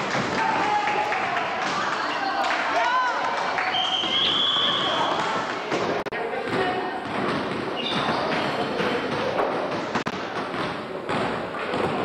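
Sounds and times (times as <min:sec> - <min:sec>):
busy hall noise: 0:00.0 - 0:12.0
ball bouncing on wooden floor: 0:04.0 - 0:12.0.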